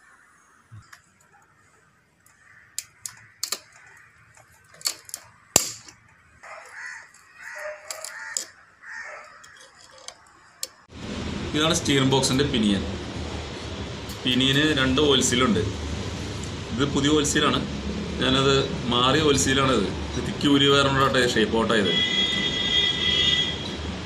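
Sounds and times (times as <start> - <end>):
metal parts clicking with pliers: 2.8 - 8.6, 9.3 - 10.8.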